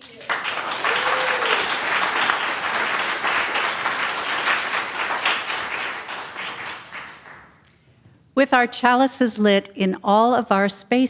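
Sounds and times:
congregation clapping: 0.0s - 7.6s.

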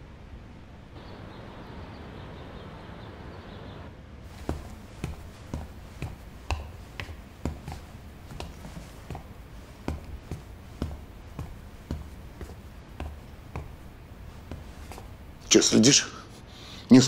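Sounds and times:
hard-soled footsteps on hard floor: 4.3s - 15.6s.

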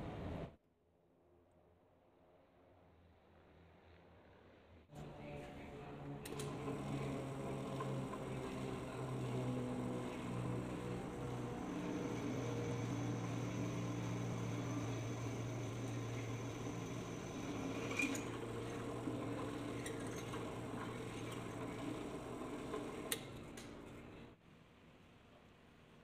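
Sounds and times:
drill press motor humming: 5.0s - 24.4s.

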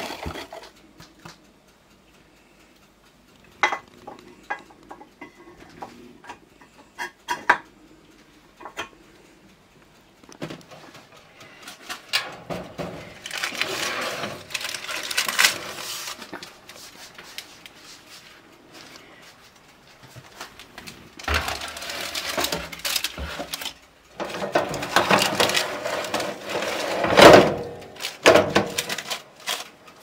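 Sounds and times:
scraping and rustling: 10.4s - 30.0s
baking tray knocking and clattering: 12.2s - 14.5s, 21.2s - 23.5s, 24.2s - 29.2s.

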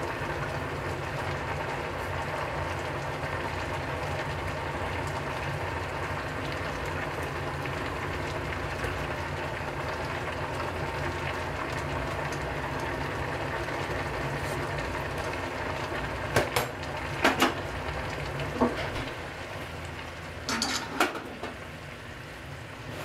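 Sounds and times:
gas burner hissing: 0.0s - 23.0s
kitchenware clinking: 20.5s - 21.6s.

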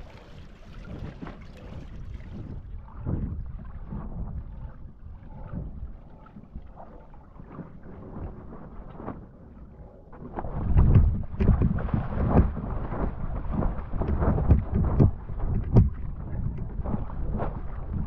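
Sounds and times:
wind buffeting microphone: 0.0s - 6.4s, 10.2s - 18.0s
water rushing around board: 0.0s - 18.0s.

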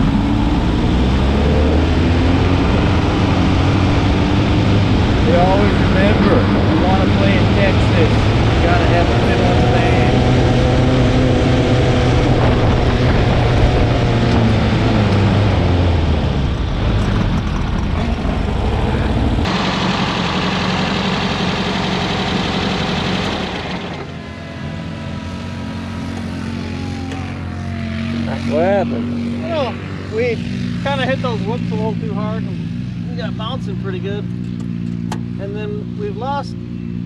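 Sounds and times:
falling whine: 0.0s - 32.6s
dune buggy engines running: 0.0s - 37.0s.

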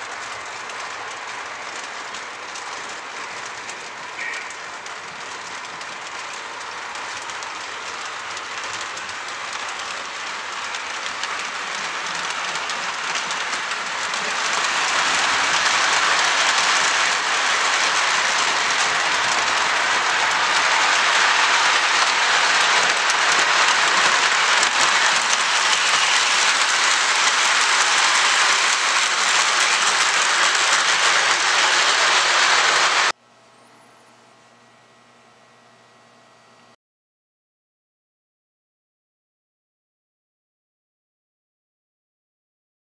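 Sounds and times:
model train rumbling: 0.0s - 33.2s.

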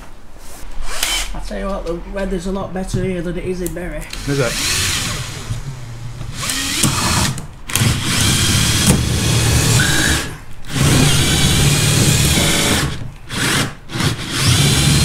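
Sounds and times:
power drill drilling into brick: 4.1s - 5.5s, 6.3s - 15.0s.

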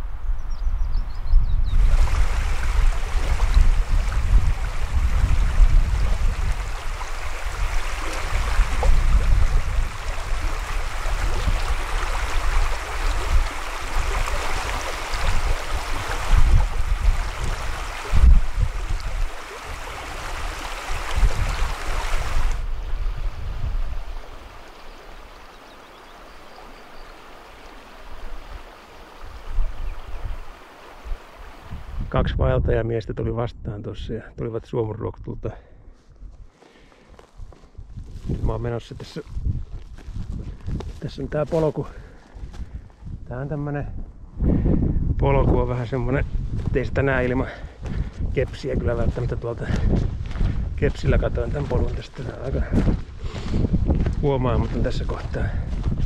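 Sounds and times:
wind rumbling on microphone: 0.0s - 34.3s, 35.2s - 56.0s
stream water rushing: 1.8s - 32.0s.

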